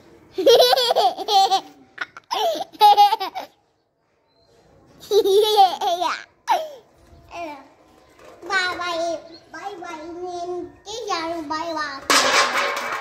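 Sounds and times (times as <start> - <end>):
girl laughing: 0.4 - 3.5, 5.1 - 6.8.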